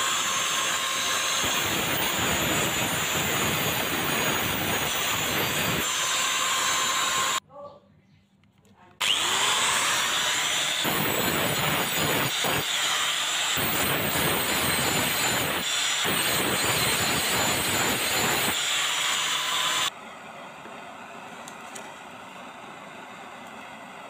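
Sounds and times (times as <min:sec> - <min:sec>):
angle grinder grinding steel: 0:00.0 - 0:07.4, 0:09.0 - 0:19.9.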